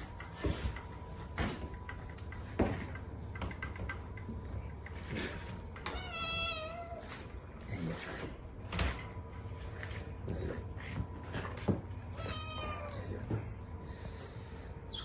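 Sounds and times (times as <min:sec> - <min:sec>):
sharp knocks and clicks: 0:00.0 - 0:05.0
kitten meowing: 0:12.2 - 0:13.0.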